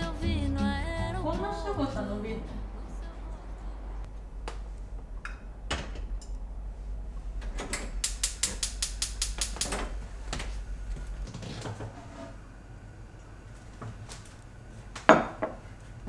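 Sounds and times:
gas burner igniter clicking: 7.7 - 11.1.

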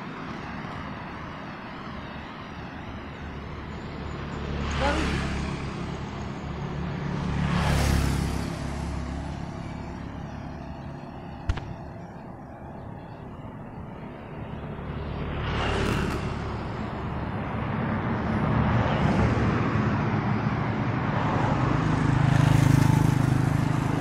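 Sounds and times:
hum of road traffic: 0.0 - 24.0
motor scooter passing: 0.0 - 24.0
vehicle rushing past: 3.0 - 12.1, 14.4 - 24.0.

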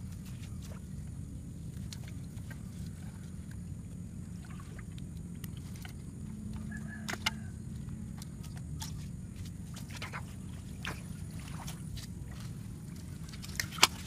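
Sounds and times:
wind rumble on microphone: 0.0 - 14.0
clicks and rustles of fish trap: 4.7 - 14.0.

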